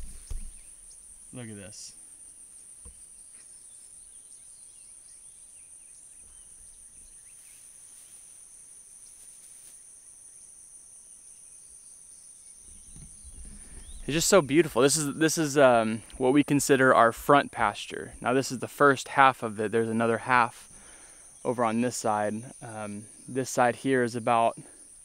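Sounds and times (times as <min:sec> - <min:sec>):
insects buzzing: 0:00.0 - 0:25.0.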